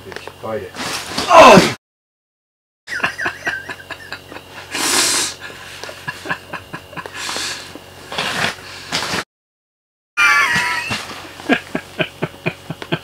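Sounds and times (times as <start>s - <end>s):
man snorting with stifled laughter: 2.9s - 8.9s, 10.2s - 13.0s.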